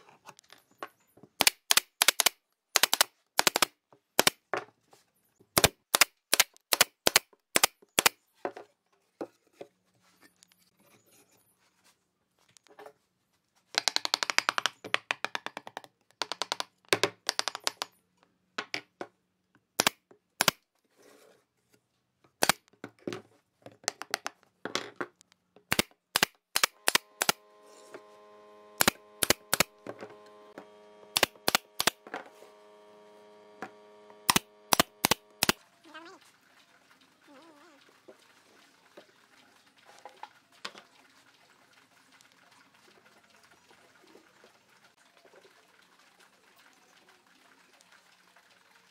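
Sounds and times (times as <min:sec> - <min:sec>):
nail gun firing into wood: 0:01.4 - 0:04.4, 0:05.6 - 0:08.2, 0:19.8 - 0:20.6, 0:22.4 - 0:22.6, 0:25.7 - 0:27.4, 0:28.8 - 0:30.1, 0:31.1 - 0:32.2, 0:34.2 - 0:35.6
steady multi-tone hum: 0:26.7 - 0:35.6.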